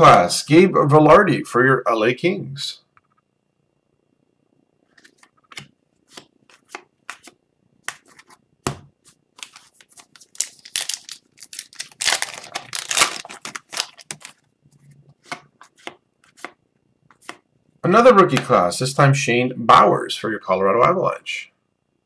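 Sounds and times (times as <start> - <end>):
foil pack crinkling and tearing: 9.4 - 14.5.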